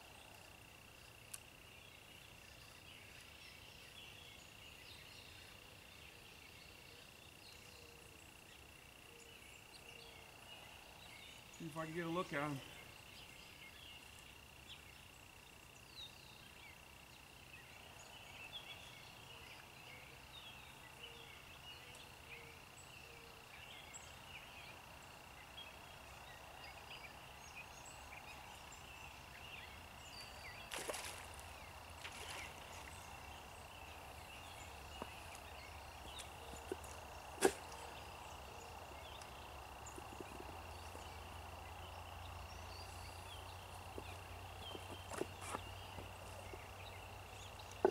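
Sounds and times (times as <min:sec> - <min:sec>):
small chirps: 0:30.3 - 0:41.4.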